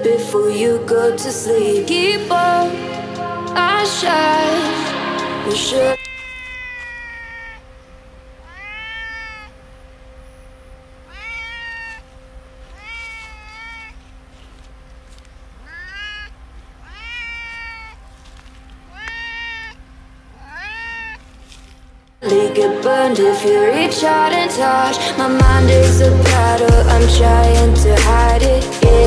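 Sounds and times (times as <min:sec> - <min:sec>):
cat meowing: 0:06.0 - 0:07.8, 0:08.4 - 0:09.6, 0:11.0 - 0:14.5, 0:15.6 - 0:18.0, 0:18.8 - 0:21.6.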